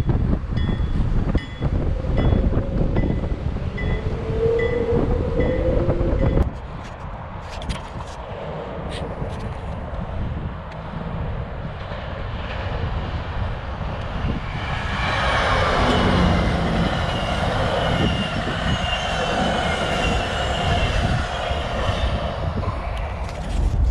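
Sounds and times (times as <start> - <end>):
train wheels rumbling on rails: 0.0 - 23.9
high wheel squeal: 0.6 - 6.4, 14.2 - 23.3.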